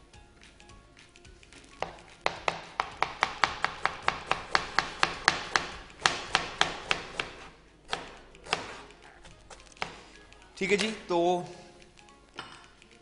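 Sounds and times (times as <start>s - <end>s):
knife chopping cabbage on board: 1.8s - 10.1s.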